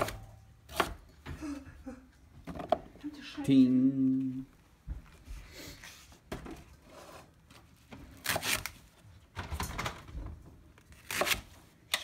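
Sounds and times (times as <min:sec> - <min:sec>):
knife chopping on wooden board: 0:00.0 - 0:01.0.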